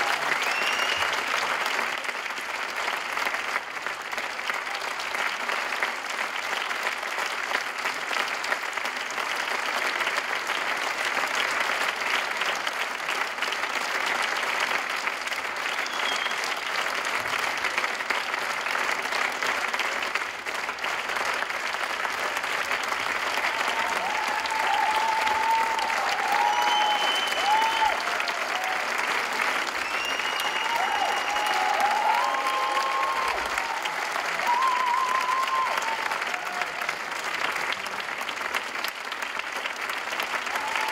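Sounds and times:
audience applauding: 0.0s - 40.9s
person whistling: 0.5s - 1.1s, 15.8s - 16.4s, 26.5s - 27.8s, 29.8s - 31.4s.

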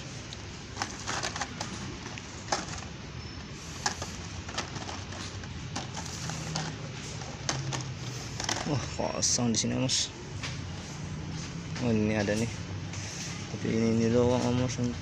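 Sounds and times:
steady low hum: 0.0s - 14.2s
packaged toys clicking and crinkling: 0.7s - 3.0s, 3.7s - 8.9s.

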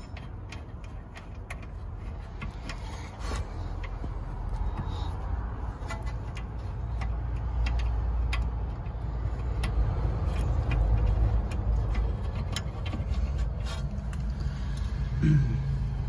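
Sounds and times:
steady low rumble: 0.0s - 16.0s
metallic clicks and taps: 3.7s - 14.9s.

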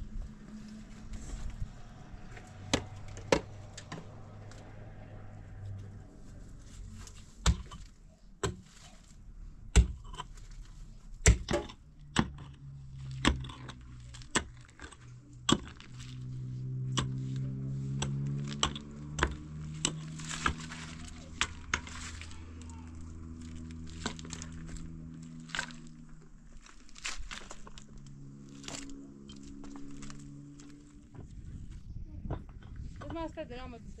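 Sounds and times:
mattock striking stony ground: 7.0s - 31.4s
low steady drone: 11.9s - 32.6s.

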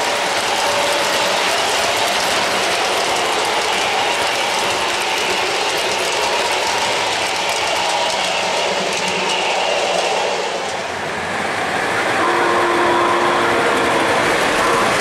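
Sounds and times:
model train wheels clattering: 0.0s - 11.2s.

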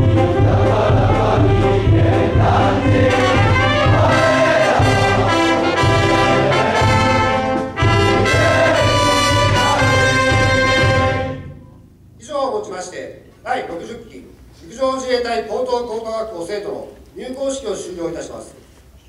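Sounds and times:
large group singing in unison: 0.0s - 11.4s
brass band playing: 0.0s - 11.8s.

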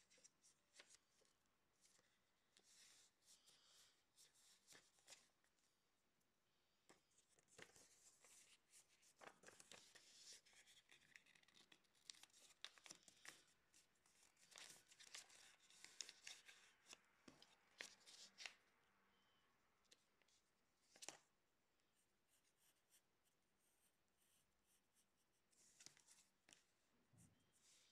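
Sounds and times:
paper rustling and creasing: 6.9s - 18.6s.

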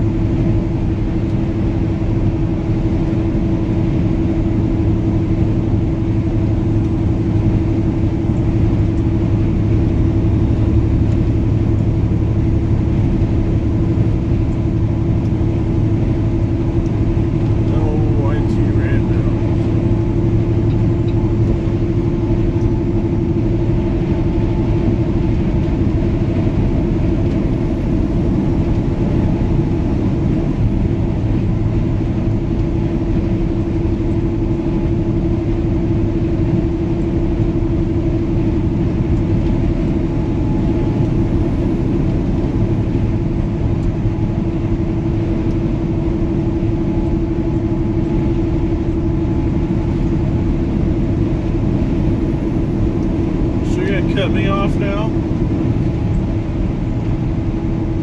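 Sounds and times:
road noise: 0.0s - 58.0s
truck engine drone: 0.0s - 58.0s.

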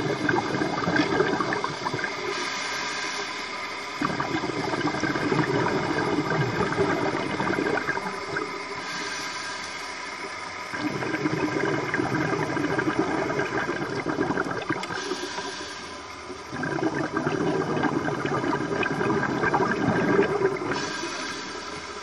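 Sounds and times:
diver's bubbles gurgling underwater: 0.0s - 2.5s, 4.0s - 9.0s, 10.7s - 21.2s.

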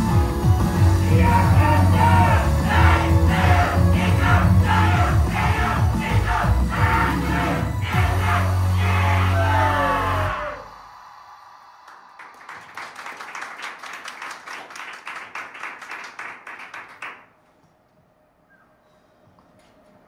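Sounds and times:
small audience clapping: 11.8s - 17.4s.

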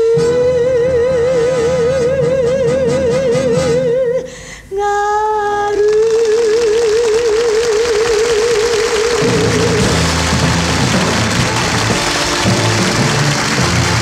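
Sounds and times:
musical accompaniment: 0.0s - 4.2s, 6.4s - 14.0s
woman singing with vibrato: 0.0s - 10.2s.

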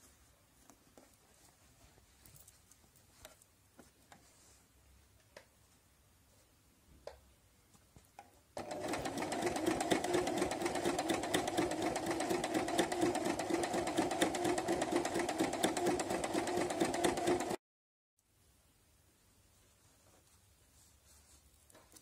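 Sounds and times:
sewing machine stitching: 8.6s - 17.6s.

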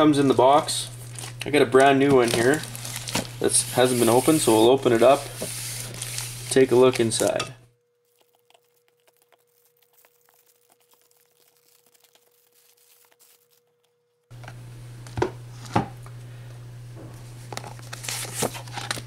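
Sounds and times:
plastic wrap crinkling and tearing: 0.9s - 7.3s, 8.0s - 14.3s, 17.6s - 19.0s
paper rustling: 1.0s - 7.4s, 8.2s - 14.0s, 17.5s - 19.0s
steady low hum: 14.3s - 18.0s.

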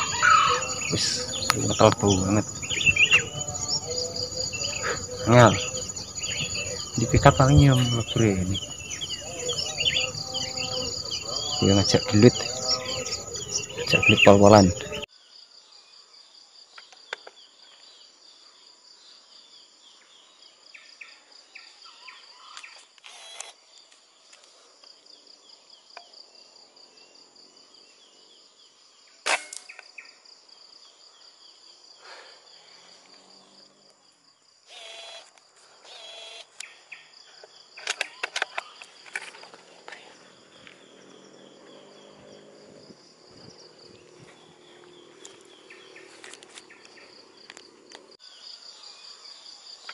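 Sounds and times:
insects chirring: 0.0s - 49.9s.

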